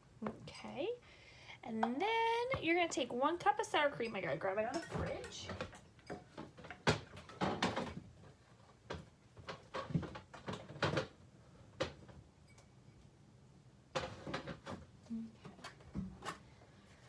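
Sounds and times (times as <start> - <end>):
containers knocking and rattling: 4.0 - 11.2.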